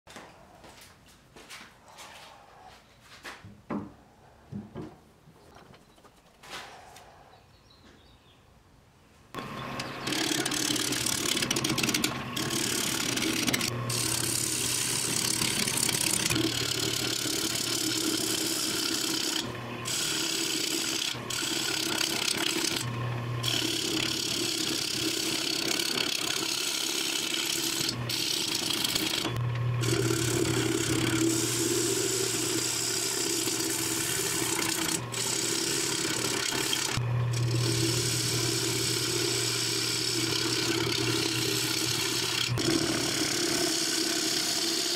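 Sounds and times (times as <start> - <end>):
turning tool cutting wood: 9.4 - 44.9
wood lathe motor hum: 9.4 - 44.9.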